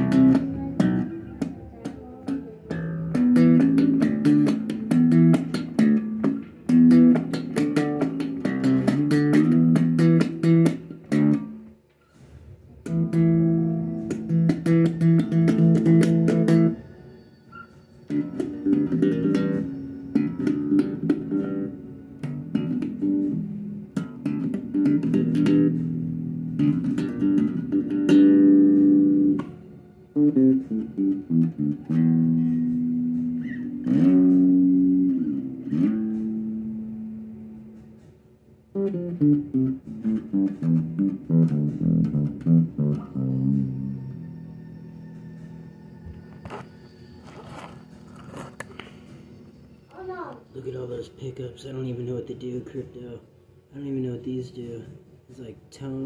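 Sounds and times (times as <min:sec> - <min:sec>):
electric bass guitar plucked: 0:00.0 - 0:11.8, 0:12.8 - 0:16.8, 0:18.1 - 0:45.5.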